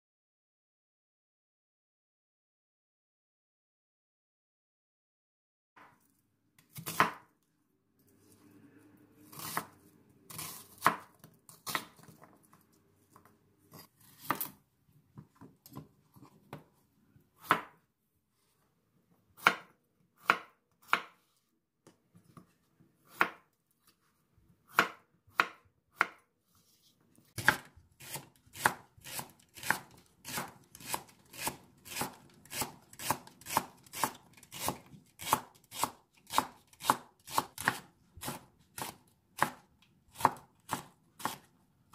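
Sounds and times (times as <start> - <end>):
knife chopping on wooden board: 6.7 - 7.3, 10.3 - 12.2, 13.8 - 14.6, 17.4 - 17.8, 19.4 - 21.2, 23.0 - 23.5, 24.7 - 26.2, 27.4 - 41.5.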